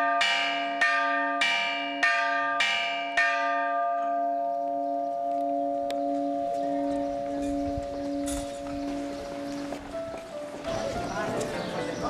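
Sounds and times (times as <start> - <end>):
church bell tolling: 0.0 - 9.5.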